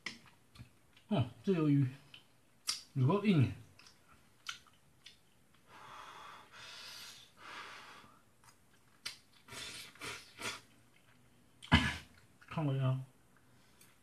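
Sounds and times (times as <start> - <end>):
breathy sucking sounds: 9.4 - 10.7.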